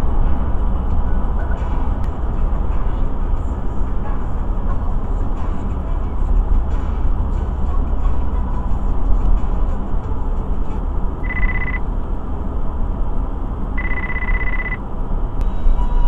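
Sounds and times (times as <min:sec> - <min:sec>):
car road and engine noise: 0:00.0 - 0:16.0
high electronic beeps: 0:11.2 - 0:11.8, 0:13.8 - 0:14.8.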